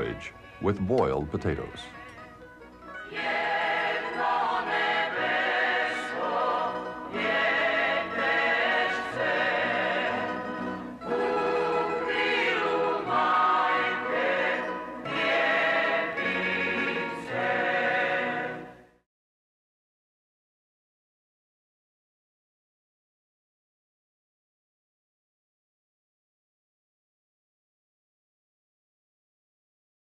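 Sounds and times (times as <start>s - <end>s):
choir singing: 3.0s - 18.9s.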